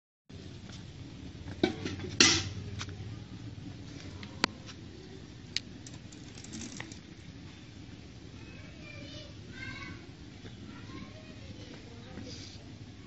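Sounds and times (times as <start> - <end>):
steady low hum: 0.3 - 13.0.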